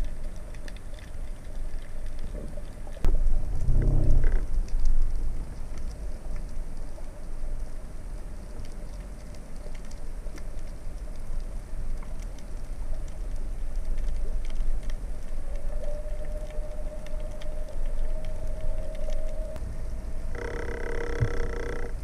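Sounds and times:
faint clicks and crackles: 0:00.0 - 0:22.0
low underwater rumble: 0:01.2 - 0:07.7.

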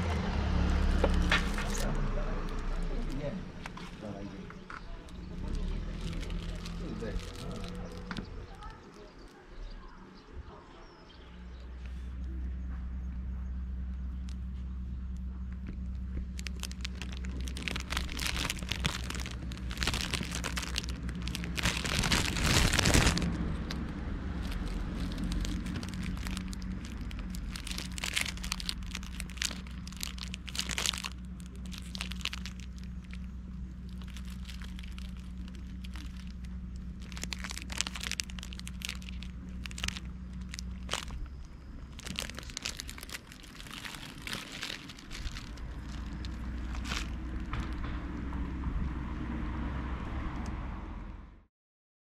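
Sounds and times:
plastic wrapper crinkling: 0:00.9 - 0:04.0, 0:04.9 - 0:09.4, 0:15.7 - 0:47.8
steady low hum: 0:11.3 - 0:49.4.

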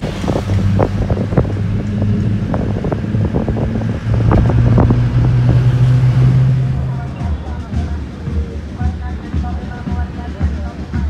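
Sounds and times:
bus body rattling: 0:00.0 - 0:08.1
wind noise: 0:00.0 - 0:08.6
bus engine droning: 0:00.0 - 0:11.0.

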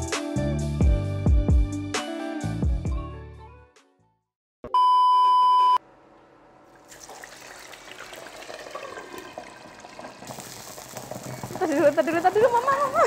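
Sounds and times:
steady electronic beep: 0:04.7 - 0:05.8
faint cooking noise: 0:06.7 - 0:13.0.

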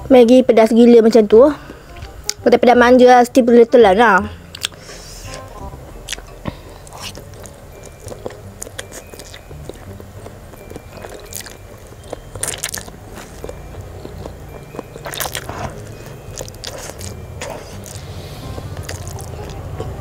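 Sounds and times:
person chewing: 0:04.4 - 0:20.0.

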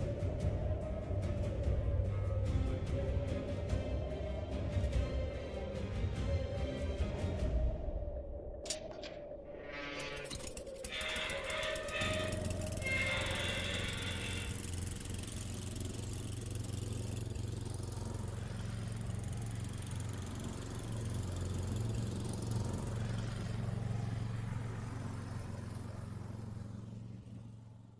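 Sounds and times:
snowblower engine running: 0:10.2 - 0:27.9.

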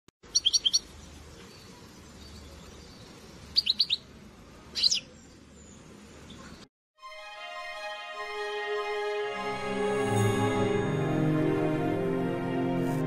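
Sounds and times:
small songbird chirping: 0:00.2 - 0:06.7.

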